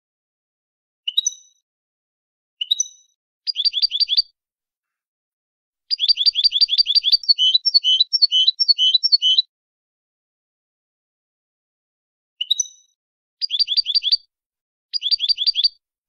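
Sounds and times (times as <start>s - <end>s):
goldfinch singing: 5.9s - 9.4s, 13.4s - 14.2s, 15.0s - 15.7s.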